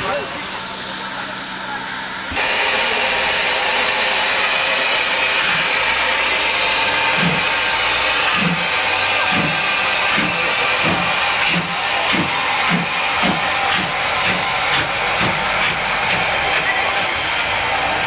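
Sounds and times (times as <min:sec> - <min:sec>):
steam hissing: 0:00.0 - 0:18.0
locomotive exhaust beats: 0:05.4 - 0:18.0.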